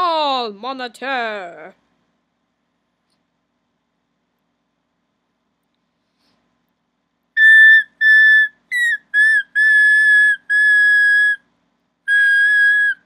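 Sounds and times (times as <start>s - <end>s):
whistle blasts: 7.4s - 11.4s, 12.1s - 13.0s.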